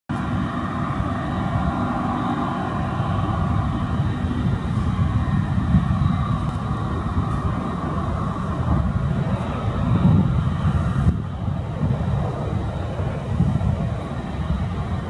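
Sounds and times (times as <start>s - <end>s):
jet engines at low thrust: 0.1s - 15.0s
wind rumbling on microphone: 0.1s - 15.0s.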